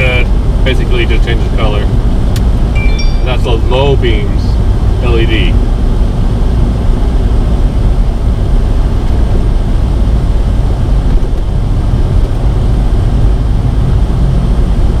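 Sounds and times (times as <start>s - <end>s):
car interior road rumble: 0.0s - 15.0s.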